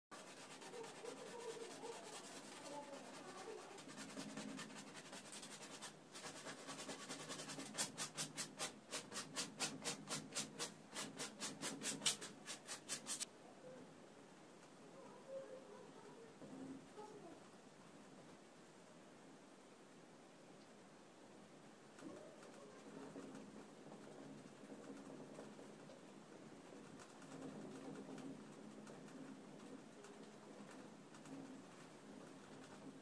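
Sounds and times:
paintbrush scrubbing on canvas: 0.1s - 13.3s.

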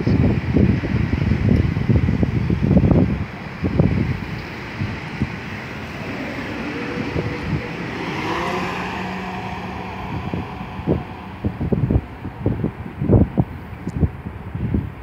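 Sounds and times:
train wheels rumbling on rail: 0.0s - 14.9s
wind buffeting microphone: 0.0s - 15.0s
traction motor whine: 5.4s - 13.8s.

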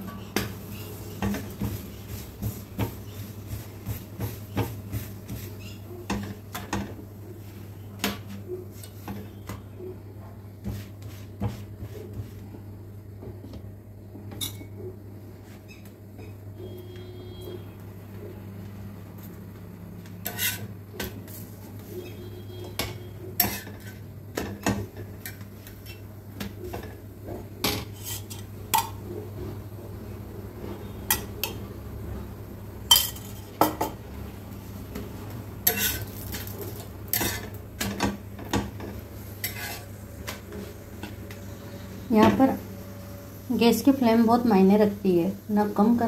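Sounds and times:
spatula scraping on griddle: 0.0s - 6.6s, 10.6s - 12.4s, 20.2s - 24.1s, 27.7s - 28.5s, 35.6s - 41.8s
steady low hum: 0.0s - 46.0s.

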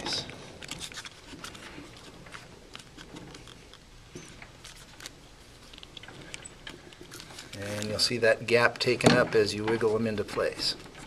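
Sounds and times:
small clicks and light scraping: 0.0s - 8.0s.

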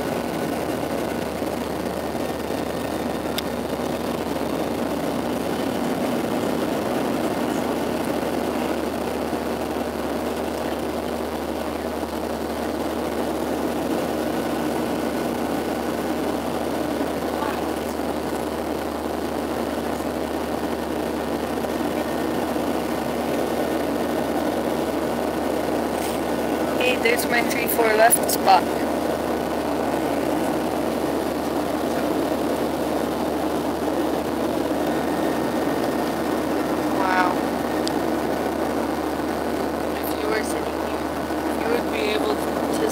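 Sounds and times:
airplane cabin engine drone: 0.0s - 42.9s
low steady hum: 0.0s - 42.9s.

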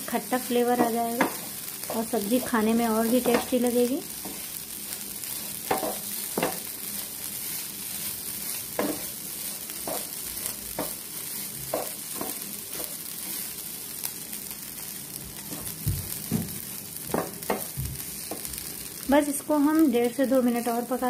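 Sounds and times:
food frying hiss: 0.0s - 21.0s
spatula scraping a pan: 5.2s - 13.6s.

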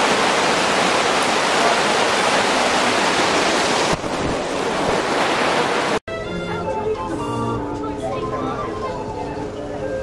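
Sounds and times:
heavy rain falling: 0.0s - 6.0s.

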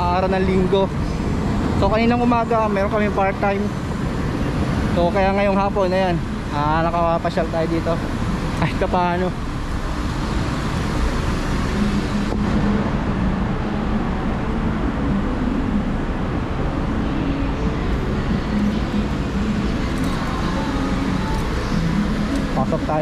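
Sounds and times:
passing vehicle engines: 0.0s - 23.0s
road noise: 0.0s - 23.0s.

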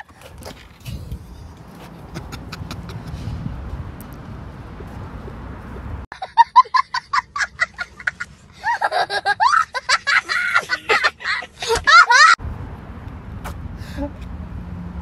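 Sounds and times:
child laughing: 6.1s - 12.4s.

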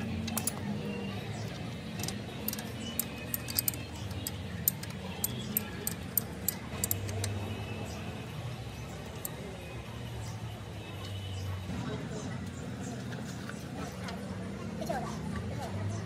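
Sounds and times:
hand tools clinking on metal: 0.2s - 0.7s, 1.5s - 7.4s.

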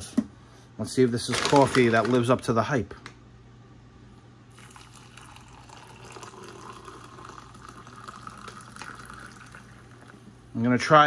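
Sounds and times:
coffee pouring into a mug: 4.5s - 10.4s.

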